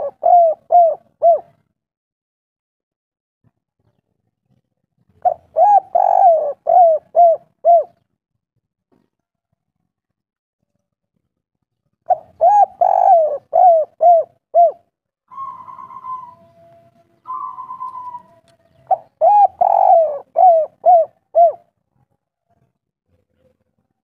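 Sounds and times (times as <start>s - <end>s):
dove cooing: 0.0s - 1.7s, 5.2s - 8.0s, 12.1s - 21.7s
soft hoarse bird sounds: 0.0s - 1.7s, 5.1s - 8.1s, 12.1s - 21.7s.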